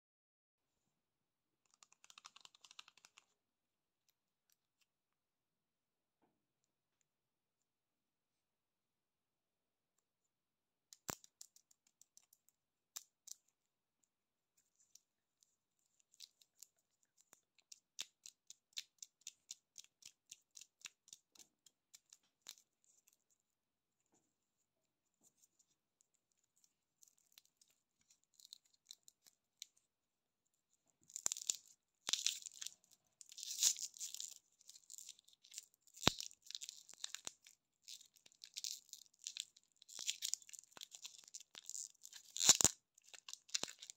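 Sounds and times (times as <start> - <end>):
plastic wrappers crinkling: 31.1 - 43.9
wrapper being torn off: 33.3 - 43.9.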